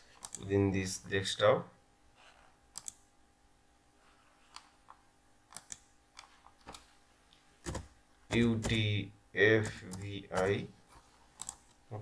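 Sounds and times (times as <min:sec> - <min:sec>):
faint steady hum: 0:00.0 - 0:12.0
mouse and keyboard clicks: 0:05.5 - 0:06.8, 0:11.4 - 0:11.7.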